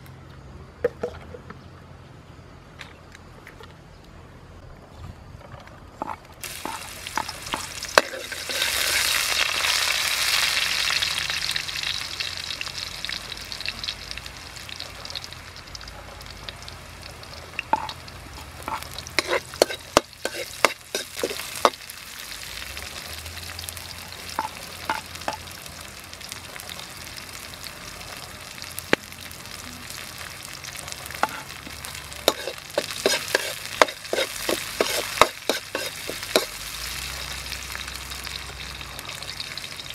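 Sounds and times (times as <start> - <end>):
ladle scraping a wok: 6.0 - 9.9, 17.7 - 21.8, 31.2 - 31.6, 32.2 - 36.6
garlic sizzling in hot oil: 6.0 - 39.9.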